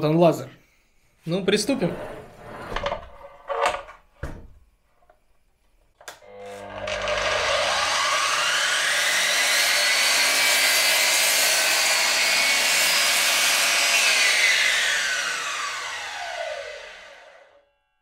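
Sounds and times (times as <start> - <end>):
miter saw motor whine: 6.2 - 10.5, 14.1 - 17.6
saw blade cutting wood: 6.3 - 17.5.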